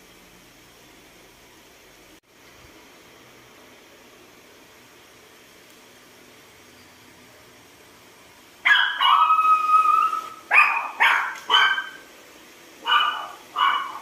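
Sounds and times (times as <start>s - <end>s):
animal crying and whining: 8.7s - 12.0s.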